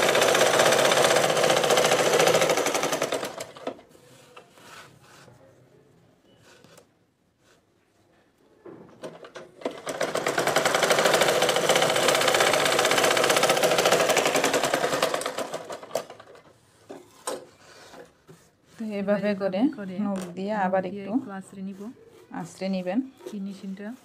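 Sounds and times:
sewing machine stitching: 0.0 - 4.4, 9.0 - 18.1.

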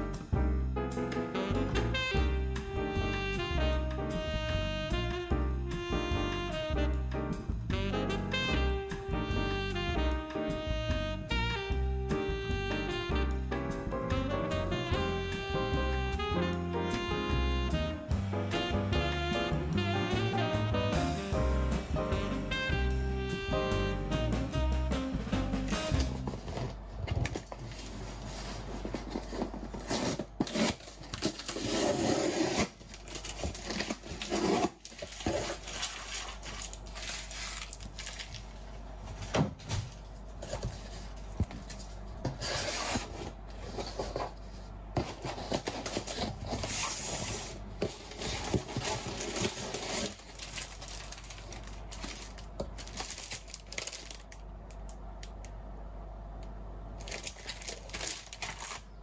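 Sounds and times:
cardboard flaps scraping: 25.3 - 38.0, 39.0 - 54.0
paper leaflets rustling: 25.7 - 54.4, 57.0 - 58.9.

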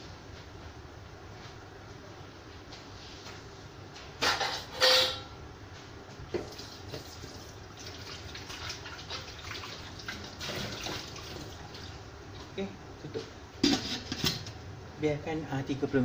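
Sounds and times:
loud short noises with ring: 4.7 - 5.3.

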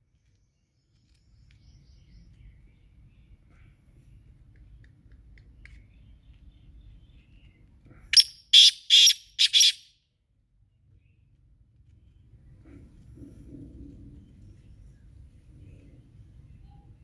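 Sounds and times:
bird calling harsh notes: 8.2 - 9.9.

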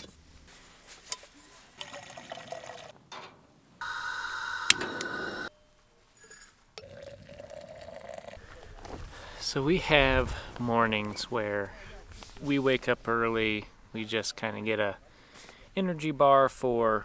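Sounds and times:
stove burner hissing: 3.8 - 5.5.

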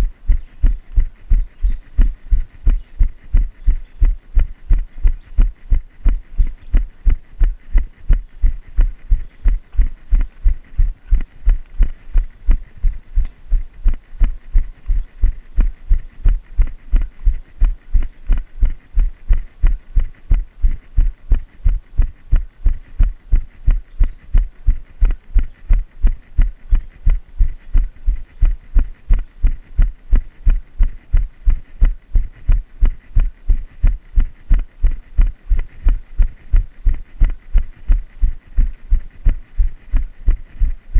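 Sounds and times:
running footfalls on a trail: 0.0 - 26.5.

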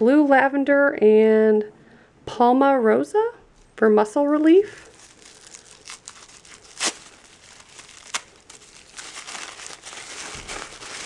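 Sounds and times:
tissue paper rustling: 4.6 - 11.0
sharp paper crackles: 4.8 - 11.0.

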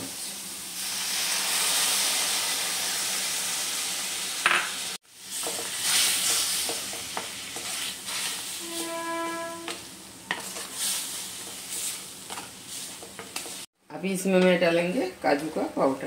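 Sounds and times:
milk sizzling in hot pan: 0.0 - 13.7
wooden spatula scraping pan: 5.4 - 13.6.

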